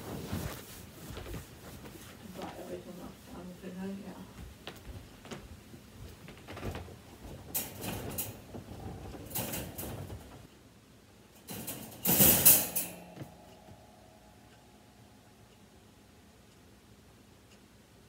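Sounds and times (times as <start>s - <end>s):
wire dog crate rattling: 6.4s - 10.5s, 11.4s - 13.4s.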